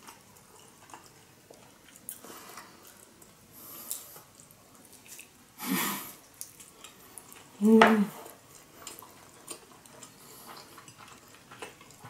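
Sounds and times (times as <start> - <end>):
food handling clicks and rustles: 8.2 - 12.0.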